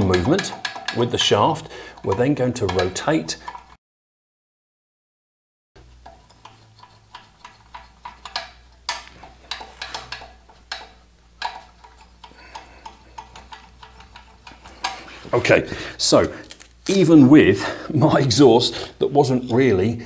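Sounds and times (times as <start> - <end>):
metallic clicks of valve: 0.0 - 3.7, 6.0 - 15.1.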